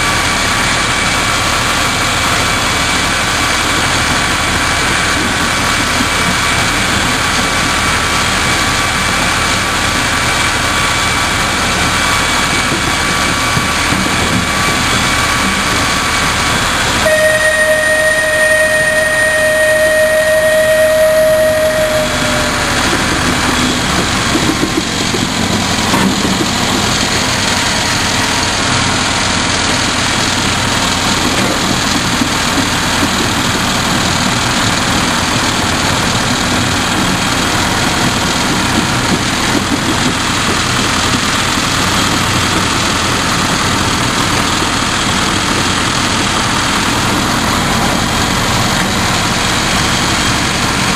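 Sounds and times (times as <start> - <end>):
train engine and track drone: 0.0 - 50.9
train whistle: 17.0 - 23.7.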